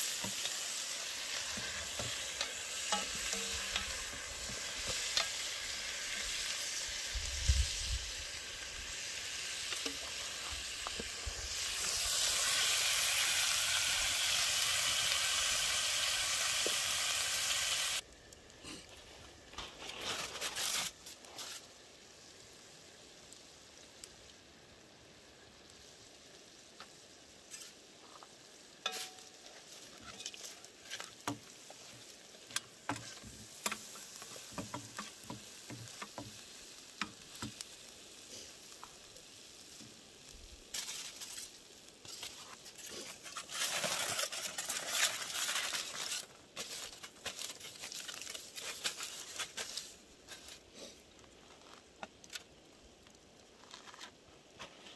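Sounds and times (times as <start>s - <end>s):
aluminium foil crinkling: 0.0s - 8.3s, 19.0s - 22.0s, 26.8s - 39.3s, 40.3s - 54.9s
fire pops and crackles: 0.0s - 54.9s
stew simmering and sizzling: 0.0s - 54.9s.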